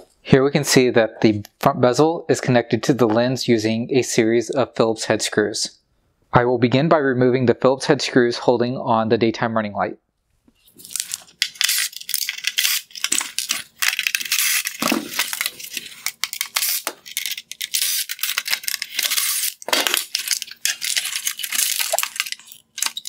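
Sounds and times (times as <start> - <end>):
hard plastic clicking and rattling: 11.4 - 23.0
cordless drill driving screws: 14.2 - 15.4.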